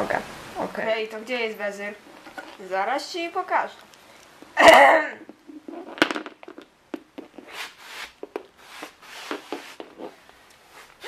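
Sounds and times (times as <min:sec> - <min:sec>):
plastic toy figures tapping on floor: 0:06.0 - 0:07.3.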